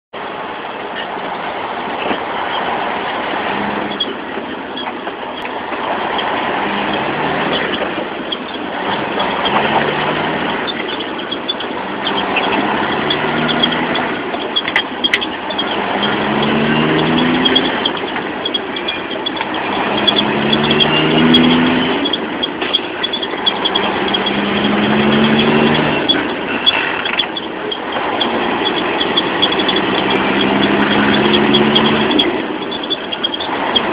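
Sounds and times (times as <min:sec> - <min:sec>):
diesel truck engine: 0:00.1 - 0:33.9
road and wind noise: 0:00.1 - 0:33.9.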